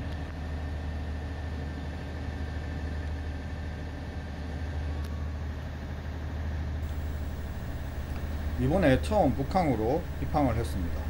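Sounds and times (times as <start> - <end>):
ferry engine drone: 6.8 - 11.0.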